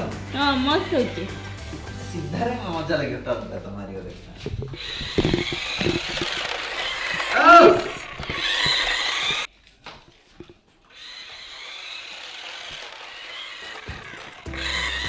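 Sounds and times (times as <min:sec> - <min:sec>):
toy car motor whirring: 0:00.4 - 0:01.5, 0:04.7 - 0:09.5, 0:10.9 - 0:15.0.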